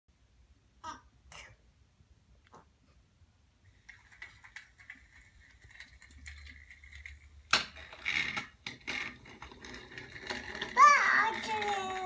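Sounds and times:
toy train mechanism clicking: 3.7 - 12.0.

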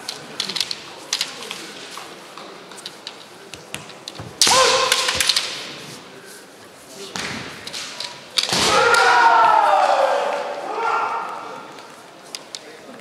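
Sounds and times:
bamboo swords clicking together: 0.0 - 3.3, 4.0 - 5.8, 7.6 - 9.1
loud shout: 4.4 - 5.1, 8.6 - 11.7.

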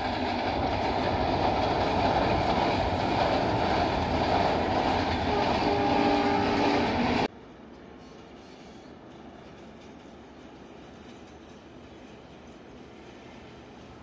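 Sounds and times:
train wheels rumbling on rails: 0.0 - 14.0
multi-pitch horn tone: 5.3 - 7.0.

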